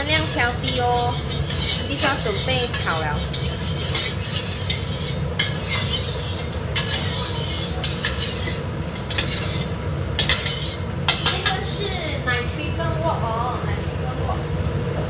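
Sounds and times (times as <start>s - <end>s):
metal spatula scraping a wok: 0.0s - 11.6s
steady low hum: 0.0s - 15.0s.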